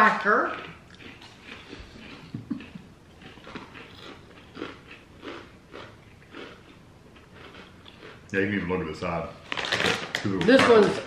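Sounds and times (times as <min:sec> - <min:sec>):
chips being bitten and chewed: 0:00.5 - 0:08.2.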